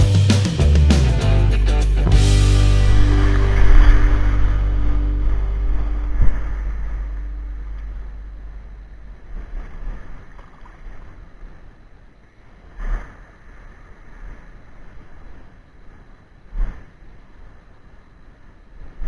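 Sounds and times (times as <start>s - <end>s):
background music: 0.0s - 8.6s
wind on microphone: 2.8s - 11.9s, 12.5s - 18.1s
seawater sloshing around wading: 3.1s - 17.0s.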